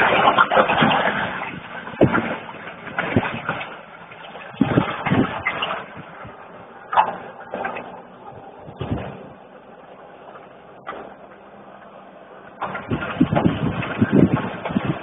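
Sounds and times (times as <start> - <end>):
distant pickup engine running: 0.0 - 15.0
loud irregular low noise: 0.0 - 15.0.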